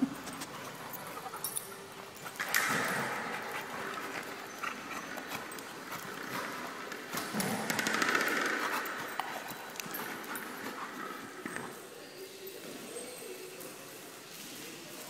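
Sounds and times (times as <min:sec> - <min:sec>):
dogs play-growling: 0:00.0 - 0:11.7
claws clicking on hard floor: 0:02.2 - 0:11.7.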